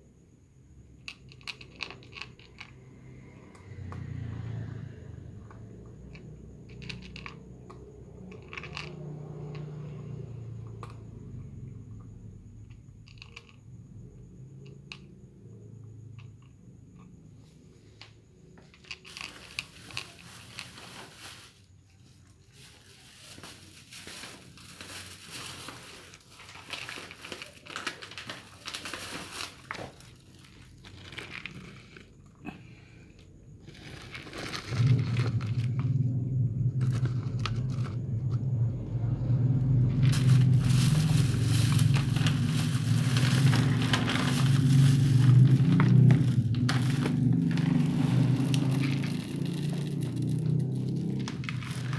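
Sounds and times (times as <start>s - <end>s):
cats crunching food: 1.0s - 4.0s, 5.4s - 11.0s, 13.0s - 13.6s, 18.6s - 21.4s, 23.4s - 32.6s, 33.6s - 38.0s, 39.6s - 51.9s
steady low hum: 31.6s - 51.9s.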